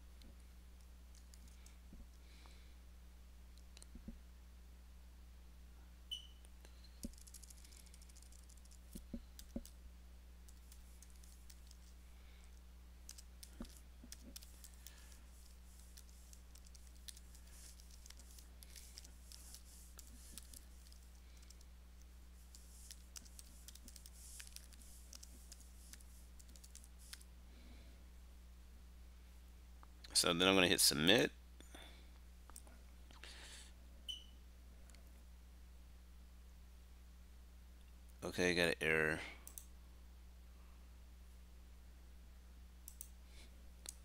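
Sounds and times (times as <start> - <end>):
steady low hum: 0.0 - 44.0
keyboard typing: 6.7 - 9.8, 10.5 - 11.9, 13.0 - 21.7, 22.4 - 27.2.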